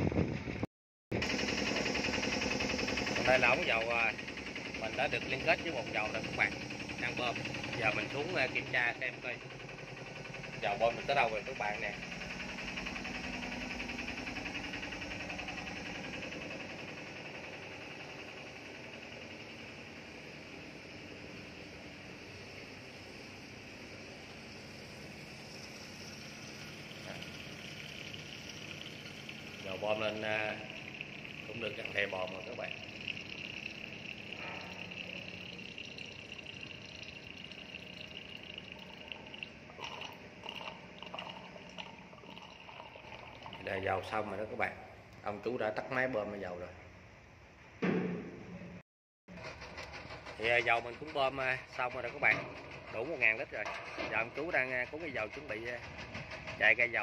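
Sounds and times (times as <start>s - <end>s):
fuel pump engine pulsing: 1.2s - 45.2s, 49.3s - 57.0s
low steady hum: 24.1s - 45.3s.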